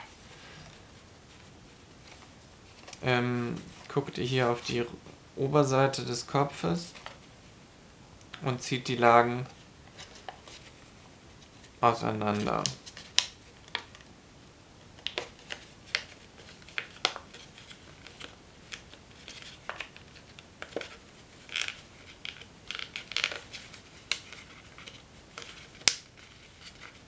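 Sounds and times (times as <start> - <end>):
paper crackling and rustling: 15.0 - 27.0.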